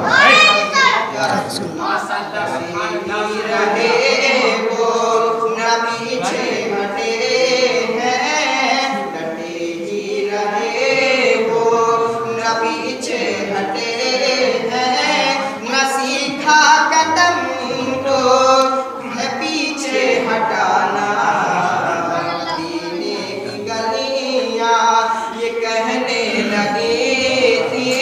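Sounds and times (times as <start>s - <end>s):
man singing devotional verse: 1.1s - 28.0s.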